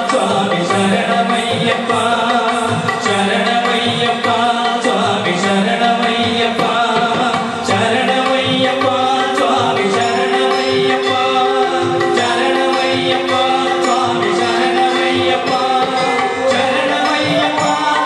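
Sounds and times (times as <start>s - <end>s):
drum accompaniment: 0.0s - 18.0s
person singing: 0.0s - 18.0s.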